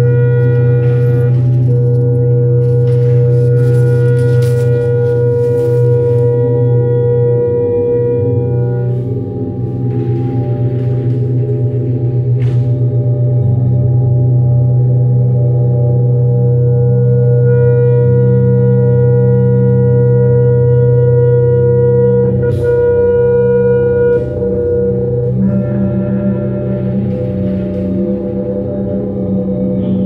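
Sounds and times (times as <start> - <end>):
electronic drone music: 0.0 - 30.0.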